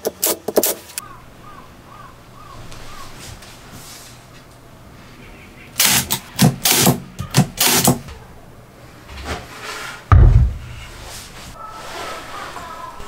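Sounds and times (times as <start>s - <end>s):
plywood scraping and sliding: 9.1s - 12.9s
deep thump of plywood set down: 10.1s - 10.7s.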